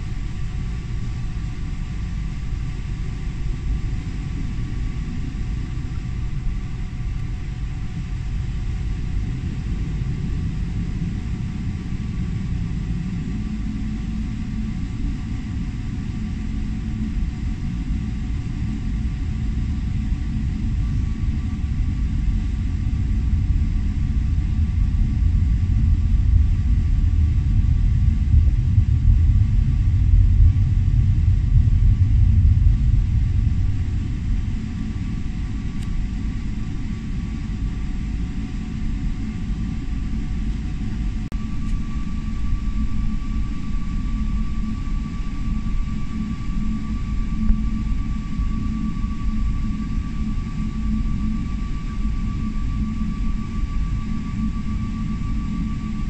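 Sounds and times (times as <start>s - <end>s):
aircraft cabin low rumble: 0.0s - 56.0s
jet engine whine: 0.0s - 56.0s.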